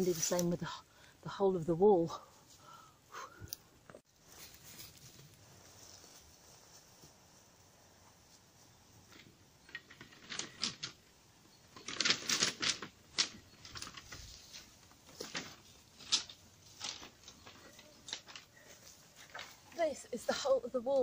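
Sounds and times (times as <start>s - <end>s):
wooden slats clattering: 11.7s - 18.5s.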